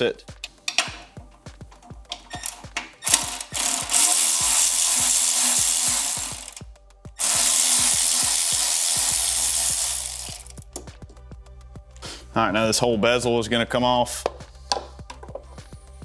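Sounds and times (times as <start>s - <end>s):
ratchet wrench clicking: 2.1s - 6.6s, 7.2s - 10.8s.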